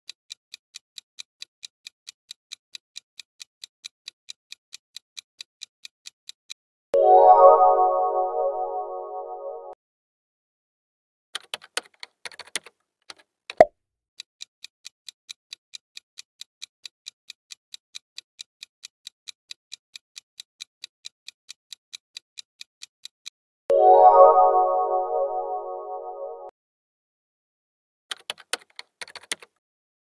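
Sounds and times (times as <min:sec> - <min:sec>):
clock ticking countdown timer: 0:00.1 - 0:09.6, 0:14.4 - 0:26.4
scattered clicks: 0:11.4 - 0:13.7, 0:28.1 - 0:29.6.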